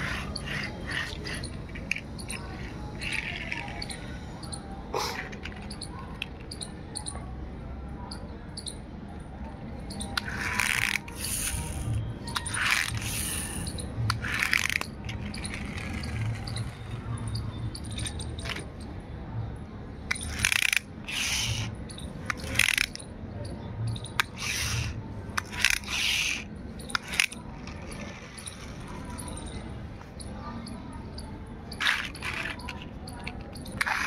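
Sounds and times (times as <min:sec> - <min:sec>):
toy car wheels scraping and clicking: 0:00.0 - 0:07.1, 0:09.9 - 0:19.0, 0:20.1 - 0:23.1, 0:23.9 - 0:29.7, 0:31.1 - 0:34.0.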